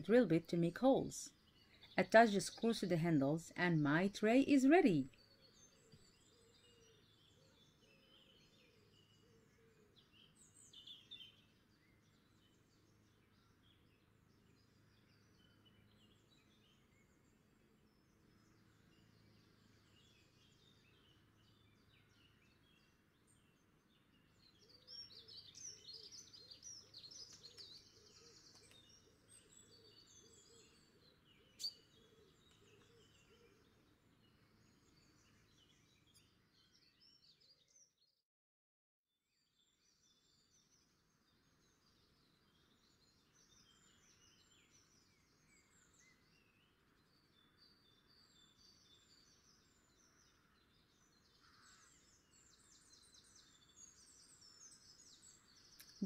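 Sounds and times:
faint bird chirps: 0.0 - 38.0.

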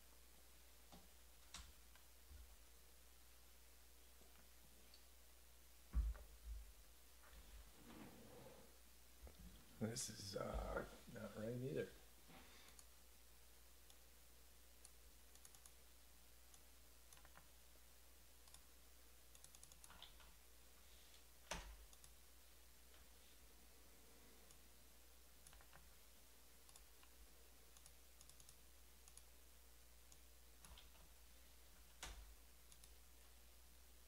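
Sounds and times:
faint clicks: 12.7 - 12.9, 21.5 - 22.2, 31.9 - 33.0.

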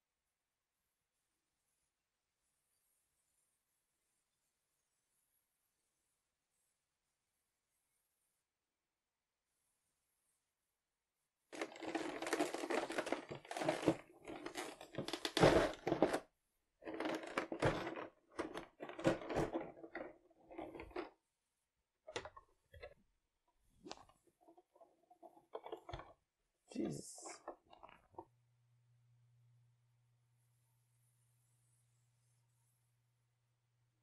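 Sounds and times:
plastic packaging crinkling: 11.6 - 16.2, 16.8 - 21.1.

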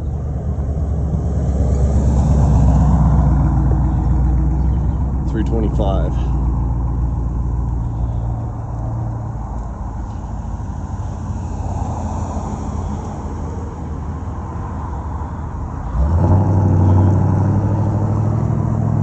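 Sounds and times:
close engine hum: 0.0 - 19.0
passing traffic: 0.0 - 19.0.

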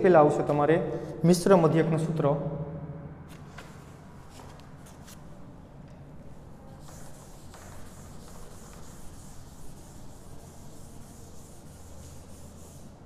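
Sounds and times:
low hum: 2.0 - 4.4
duster wiping a chalkboard: 6.3 - 13.0.

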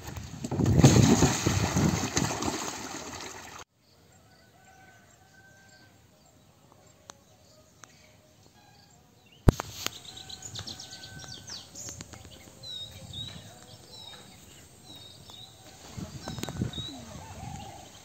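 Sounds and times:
light outdoor ambience: 2.2 - 18.0
birds chirping: 4.8 - 18.0.

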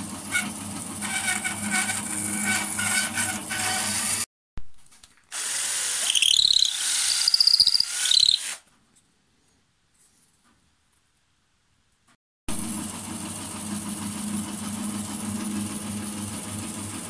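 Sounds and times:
power drill boring wood: 0.3 - 4.3, 5.3 - 8.6
machine sound: 5.4 - 8.6.

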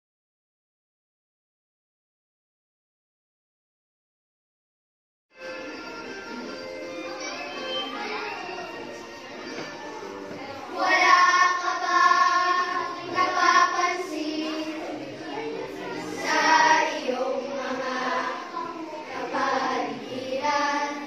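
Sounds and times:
group of voices singing: 10.3 - 21.0.

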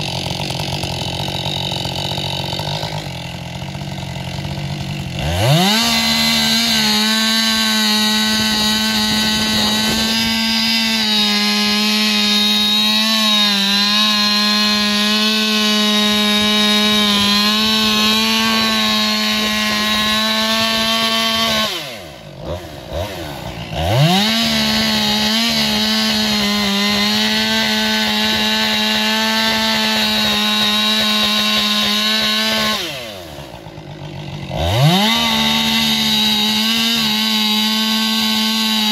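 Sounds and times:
chainsaw engine revving: 0.0 - 38.9.

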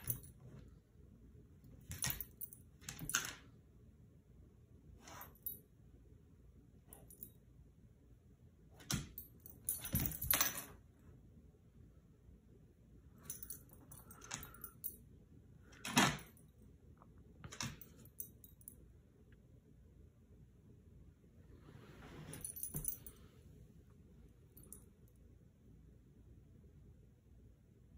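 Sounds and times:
dog collar tags jingling: 0.0 - 0.4, 1.8 - 3.3, 8.8 - 10.8, 13.2 - 15.0, 22.3 - 23.1.

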